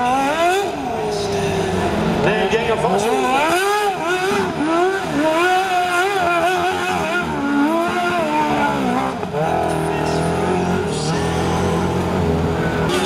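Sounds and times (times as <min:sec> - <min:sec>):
lawnmower engine revving hard: 0:03.0 - 0:13.0.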